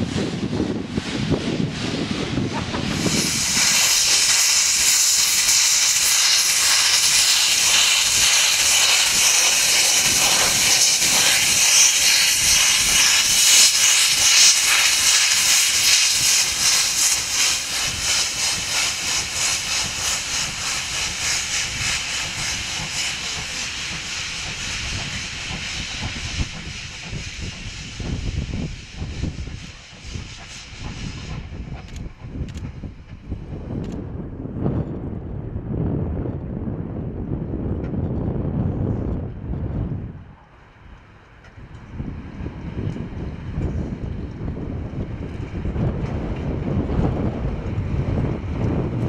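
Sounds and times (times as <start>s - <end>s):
steam locomotive hissing steam: 0.0s - 33.2s.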